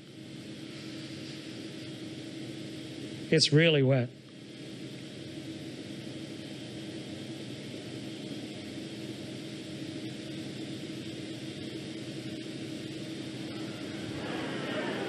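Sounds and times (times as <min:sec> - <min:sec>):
ventilation fans hum and hiss: 0:00.0 - 0:15.0.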